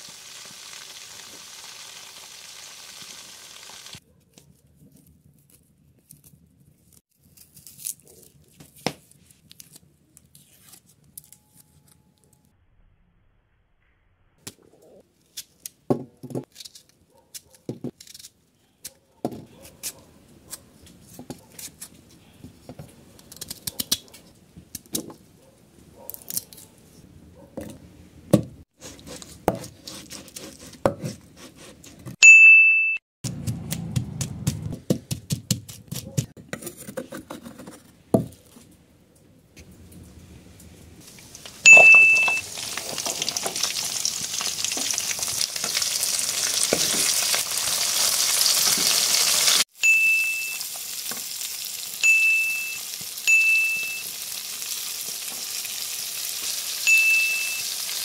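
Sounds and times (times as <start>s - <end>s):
onions sizzling in hot oil: 0.0s - 4.0s, 41.0s - 58.0s
pestle pounding in mortar: 33.2s - 36.3s
short bright tone: 41.7s - 42.4s, 49.8s - 50.6s, 52.0s - 54.1s, 56.9s - 57.8s.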